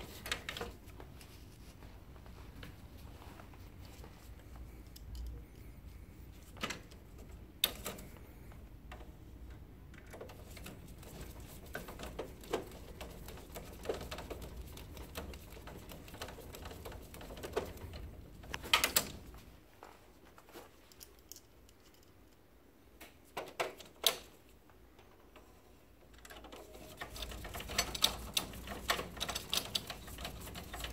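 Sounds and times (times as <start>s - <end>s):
plastic parts clicking: 26.0s - 30.9s.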